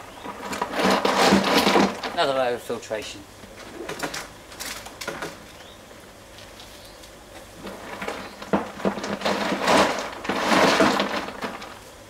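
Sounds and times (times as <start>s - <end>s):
hard plastic clattering and scraping: 0.2s - 2.3s, 3.6s - 5.4s, 7.6s - 11.8s.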